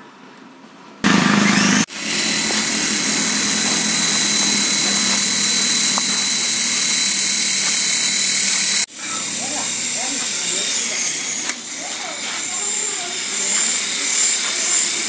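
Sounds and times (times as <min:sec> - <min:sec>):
toy helicopter motors whining: 0:01.2 - 0:15.0.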